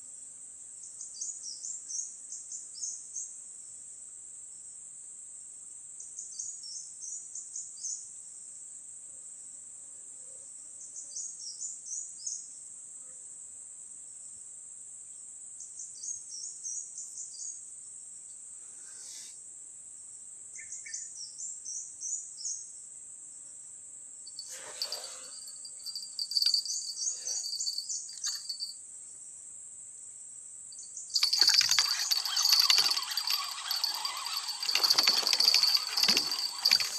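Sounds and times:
insects droning: 24.2s - 28.8s, 30.7s - 36.9s
bird chirping: 25.4s - 28.7s, 30.8s - 36.9s
rustling and handling noises: 31.2s - 36.9s.

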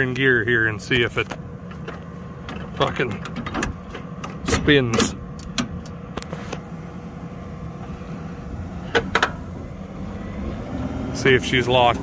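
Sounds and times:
tractor diesel engine running: 0.0s - 12.0s
sharp clunks: 8.9s - 9.4s.

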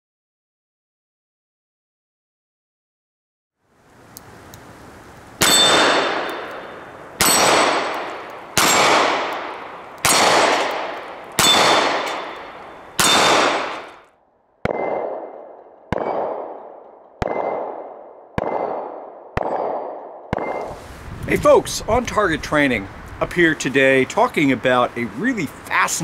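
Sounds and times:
steel plate ringing: 5.4s - 10.7s
revolver shots echoing: 5.4s - 20.7s.

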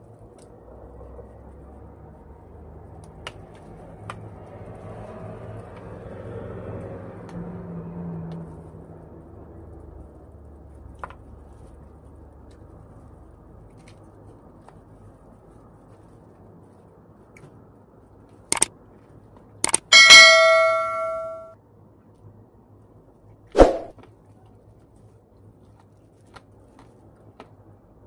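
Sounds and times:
notification bell ding: 19.7s - 21.5s.

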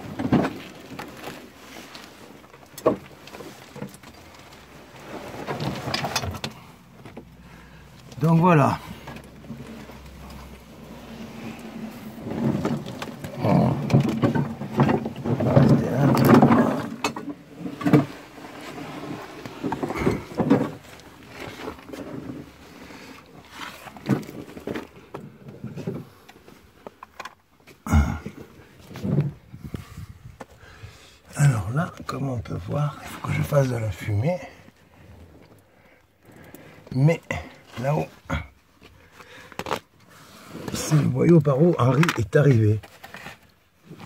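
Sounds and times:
scraping and knocks against rock: 8.2s - 26.2s
man breathing and grunting: 13.2s - 14.1s, 19.8s - 20.9s, 27.8s - 31.6s, 35.6s - 39.7s.

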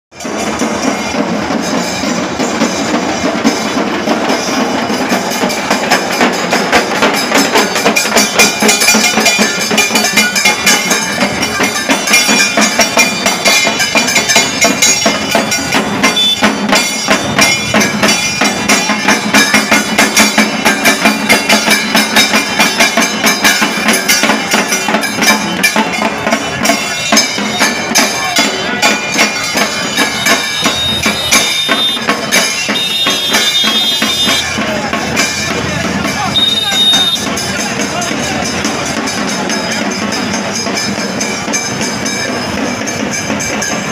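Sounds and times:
crowd chatter: 0.1s - 43.9s
drums beating fast rhythm: 0.1s - 43.9s
other instruments playing: 0.2s - 43.9s.

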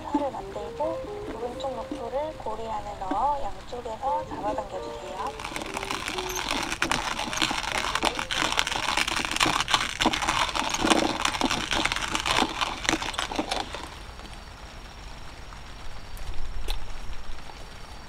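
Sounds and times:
cord rustling and crinkling: 5.2s - 14.4s.

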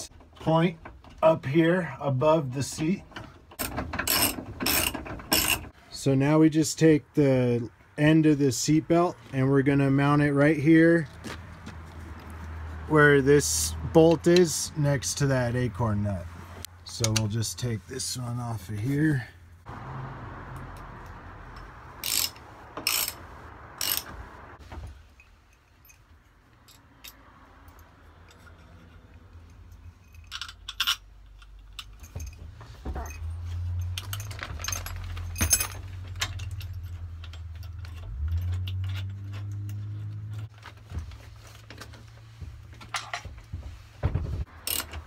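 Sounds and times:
wrench and bolts clinking: 3.2s - 5.7s, 21.5s - 23.2s, 23.8s - 24.1s, 25.1s - 40.6s, 44.6s - 45.0s.

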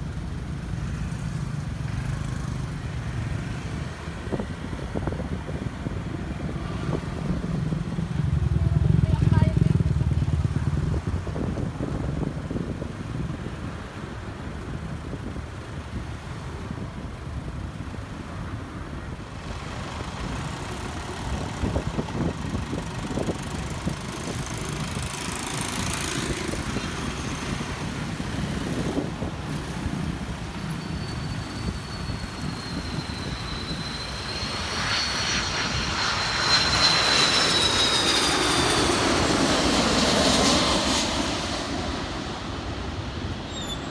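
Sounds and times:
jet engine whine: 18.1s - 43.9s.

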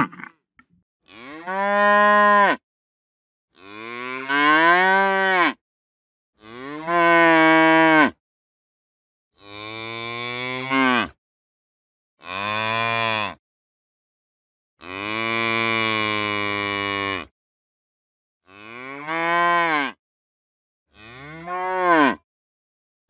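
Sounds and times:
cows mooing: 21.0s - 22.2s.

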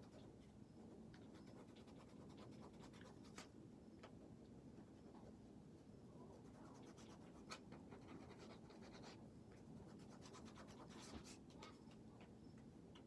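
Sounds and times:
crayon scratching on paper: 1.2s - 3.5s, 6.3s - 9.2s, 9.8s - 11.5s.

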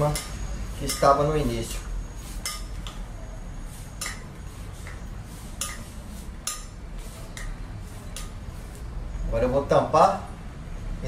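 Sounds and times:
metal spoon clinking glass bowl: 0.0s - 1.8s, 2.4s - 3.0s, 4.0s - 4.3s.

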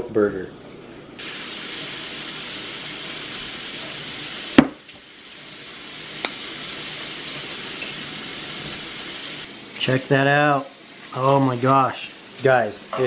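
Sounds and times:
food sizzling in a pan: 1.2s - 13.0s
sharp knock: 4.6s - 4.8s.

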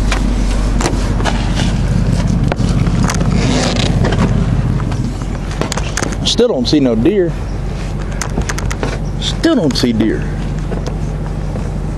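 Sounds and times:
steady low rumble: 0.0s - 11.9s.

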